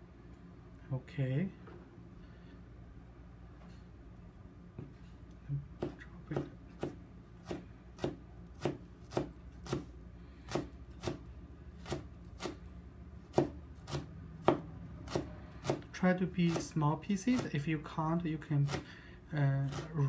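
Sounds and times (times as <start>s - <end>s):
knife chopping on plastic cutting board: 5.8s - 12.6s, 13.2s - 17.6s, 18.6s - 18.9s.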